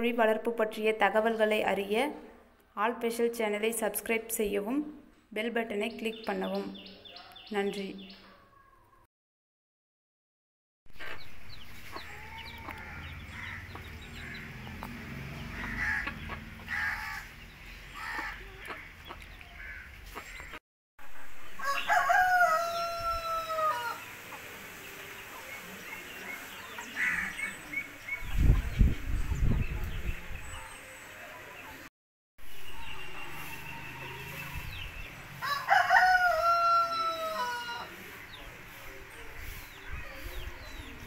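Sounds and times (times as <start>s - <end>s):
chicks peeping: 11.0s - 16.7s
rooster crowing: 21.6s - 24.0s, 35.4s - 37.9s.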